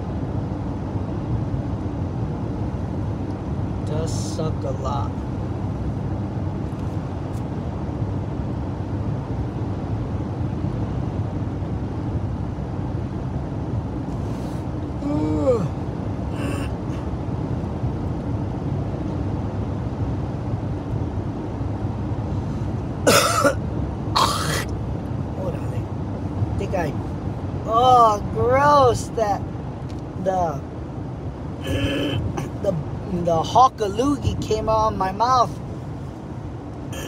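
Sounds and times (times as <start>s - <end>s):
car road and engine rumble: 0.0s - 37.0s
man clearing throat harshly: 23.1s - 23.6s, 24.2s - 24.7s, 31.6s - 32.6s.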